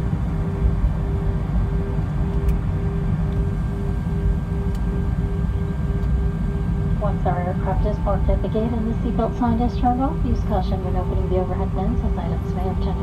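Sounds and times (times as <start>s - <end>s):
jet engines idling: 0.0s - 13.0s
steady cabin hum: 0.0s - 13.0s.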